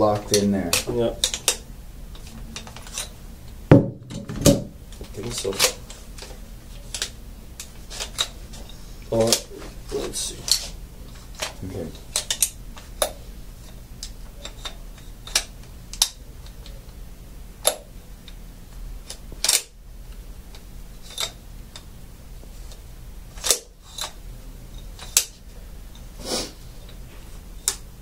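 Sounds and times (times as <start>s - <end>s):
metal parts clicking and knocking: 0.2s - 1.6s.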